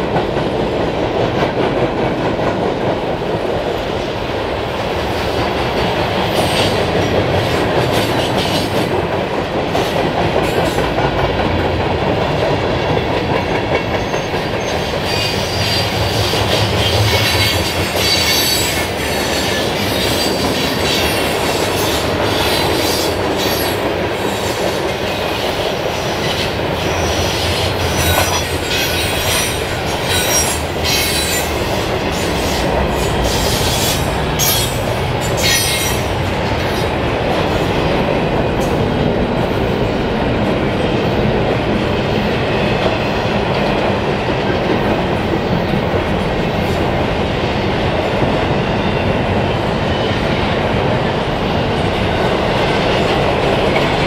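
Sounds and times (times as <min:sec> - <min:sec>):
rhythmic clickety-clack of wheels: 0:00.0 - 0:54.0
train wheels rolling on rails: 0:00.0 - 0:54.0
high wheel squeal: 0:32.5 - 0:36.1.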